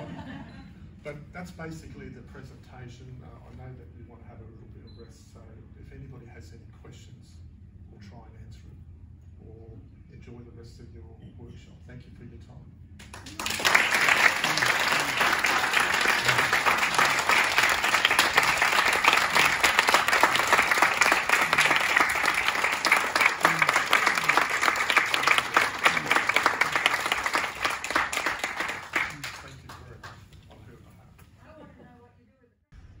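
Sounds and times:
crowd applauding: 13.0 - 30.2.

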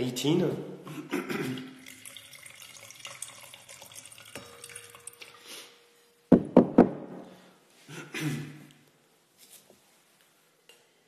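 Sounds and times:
wine pouring into a glass: 1.6 - 5.5
sharp knocks: 6.3 - 7.2.

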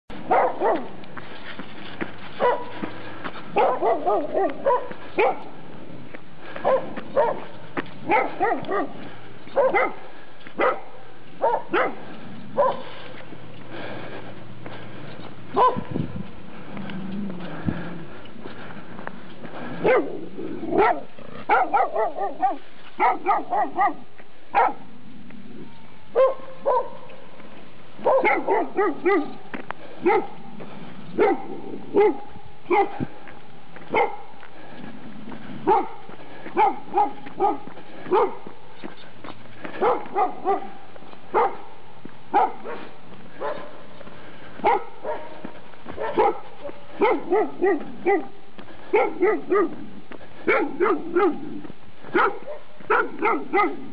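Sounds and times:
dog barking: 0.2 - 1.0, 2.4 - 2.9, 3.5 - 5.6, 6.6 - 13.0, 15.5 - 15.9, 19.8 - 25.0, 26.1 - 27.2, 28.0 - 29.4, 30.0 - 30.5, 31.1 - 33.2, 33.9 - 34.4, 35.6 - 38.6, 39.7 - 43.9, 44.6 - 53.9.

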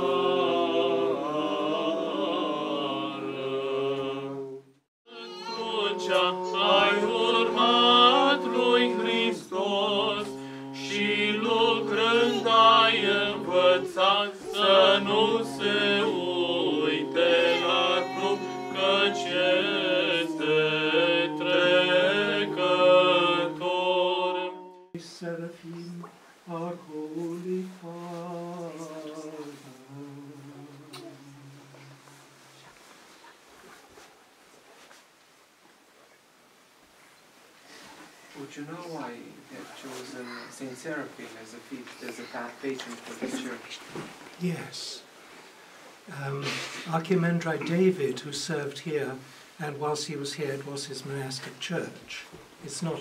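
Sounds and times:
chant melody over drone: 0.0 - 4.5, 5.1 - 25.0
soft voices: 5.1 - 23.7, 25.0 - 34.1, 37.7 - 45.1, 46.1 - 53.0.

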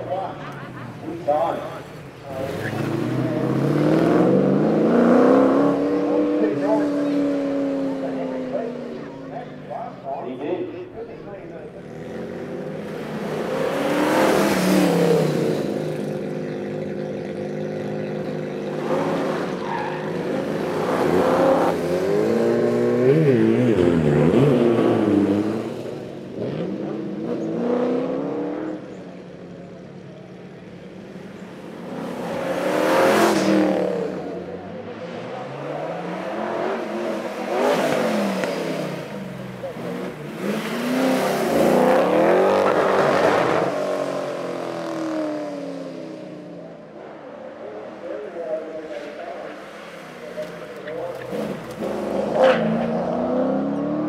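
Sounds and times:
car engine revving hard: 2.3 - 8.8, 11.8 - 16.9, 17.5 - 28.9, 31.8 - 46.5, 50.9 - 54.0.

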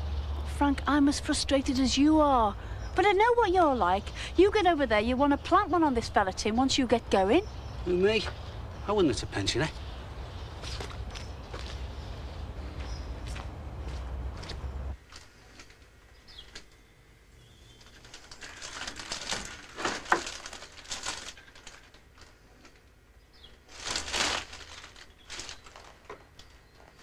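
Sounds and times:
plastic bag rustling: 17.7 - 22.8, 23.5 - 27.0.

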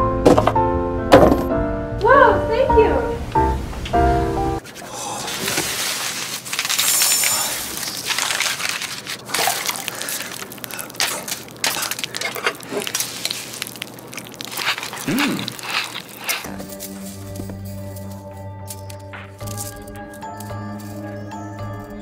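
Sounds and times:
packing material crinkling: 4.6 - 21.4
pouring-like hiss: 4.9 - 19.7
person humming: 15.0 - 15.6, 16.3 - 18.2.

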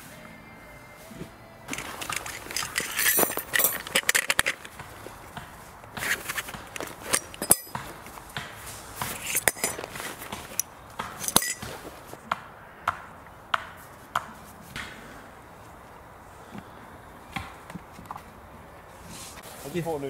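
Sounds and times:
tent poles clattering: 1.0 - 12.2, 13.6 - 20.0
short metallic rings: 1.7 - 4.8, 6.0 - 8.1, 9.0 - 10.6, 11.2 - 12.0.

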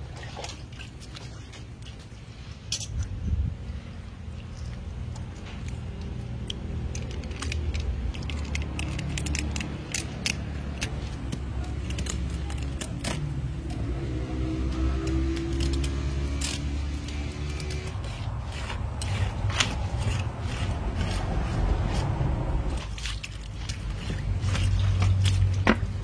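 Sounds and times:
steady low rumble: 2.1 - 26.0
knife working eel wet clicks: 4.8 - 13.8.

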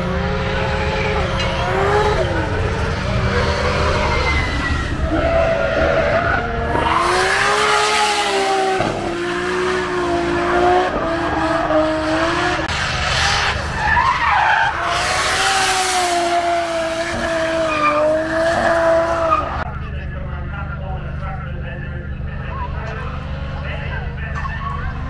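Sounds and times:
car engine revving high: 0.0 - 19.6
tyres screeching: 0.8 - 9.3.

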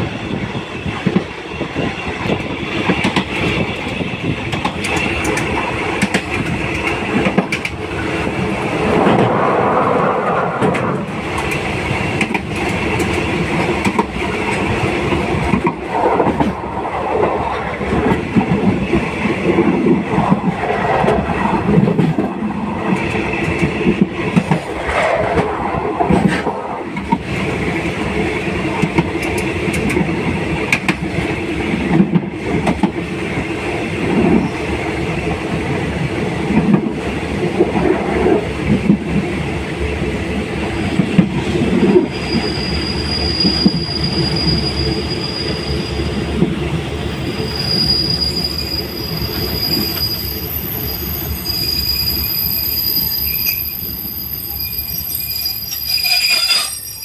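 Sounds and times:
train wheels rumbling: 0.0 - 57.0
high-pitched wheel squeal: 42.1 - 46.3, 47.2 - 57.0.

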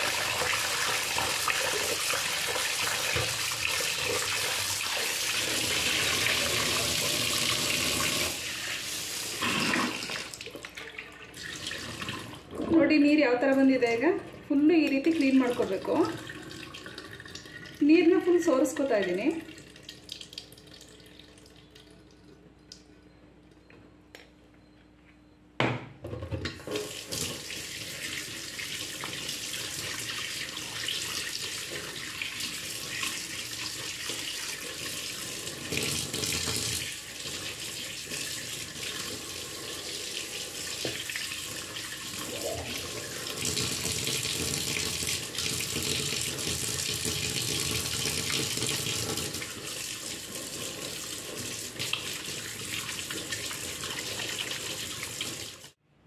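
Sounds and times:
kitchen tap running into sink: 0.0 - 12.8, 14.8 - 17.8, 26.4 - 55.8.

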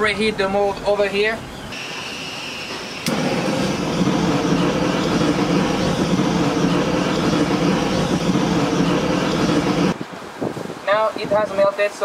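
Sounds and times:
gas torch flame rushing: 1.8 - 10.0.

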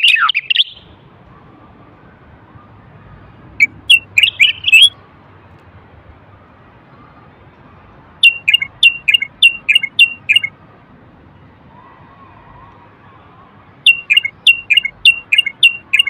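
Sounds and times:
bird whistling song: 0.0 - 1.0, 3.6 - 5.0, 8.2 - 10.5, 13.8 - 16.0.

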